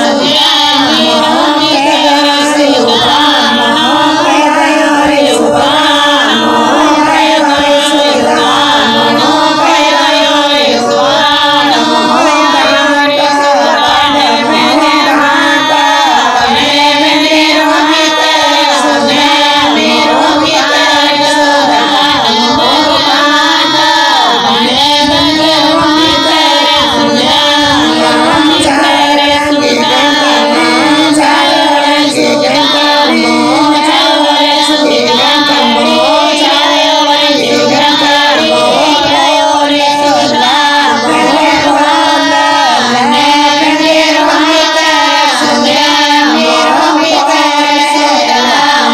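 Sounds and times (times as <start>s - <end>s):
high singing voice: 0.0s - 48.9s.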